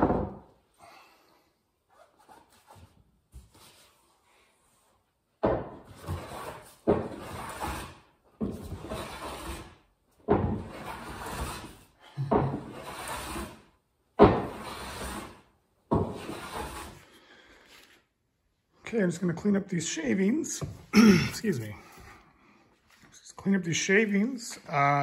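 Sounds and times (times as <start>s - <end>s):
hand plane shaving wood: 5.9s - 9.8s, 10.6s - 11.9s, 12.5s - 13.7s, 14.3s - 17.5s.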